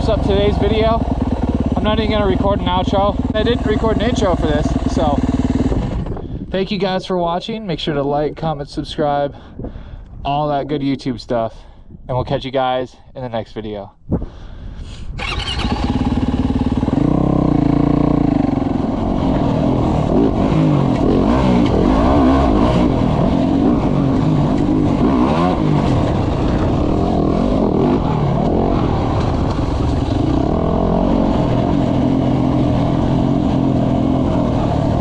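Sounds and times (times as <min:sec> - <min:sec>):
dirt bike engine revving: 0:00.0 - 0:06.2, 0:15.2 - 0:35.0.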